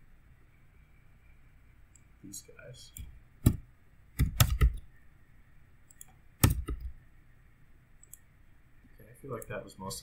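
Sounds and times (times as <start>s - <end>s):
keyboard keystrokes: 4.2s - 4.8s, 5.9s - 6.9s.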